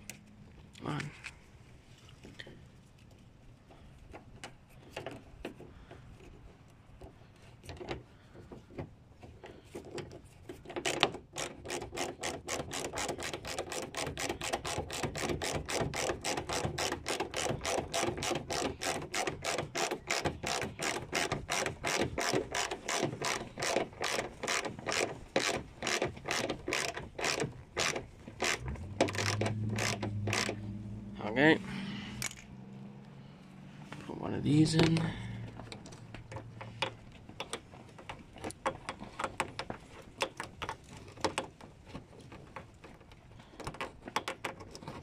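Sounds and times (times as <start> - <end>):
ratchet wrench clicking: 10.9 - 30.6.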